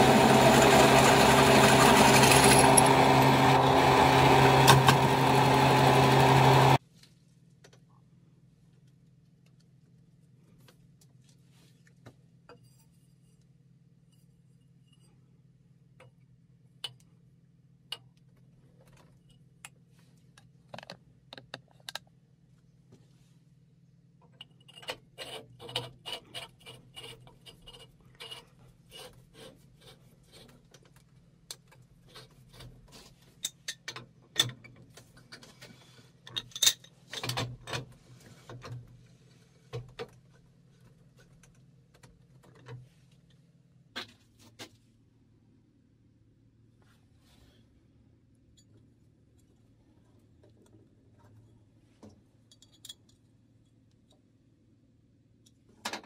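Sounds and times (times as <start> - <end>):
metal parts clicking and clinking: 52.4 - 53.3.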